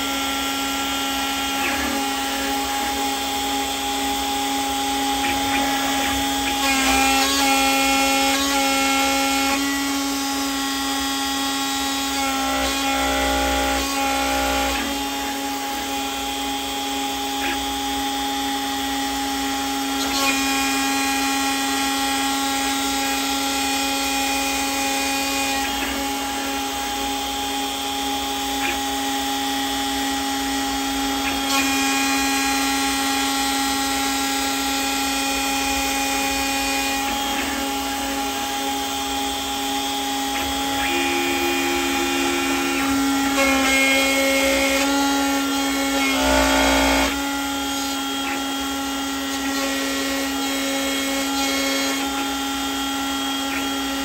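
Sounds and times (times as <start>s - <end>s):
end mill cutting metal: 0.0s - 54.0s
milling machine spindle whine: 0.0s - 54.0s.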